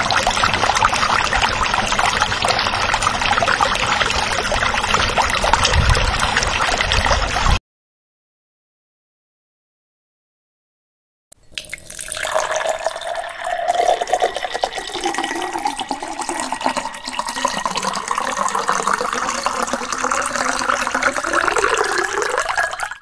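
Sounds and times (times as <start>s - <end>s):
liquid pouring: 11.4s - 23.0s.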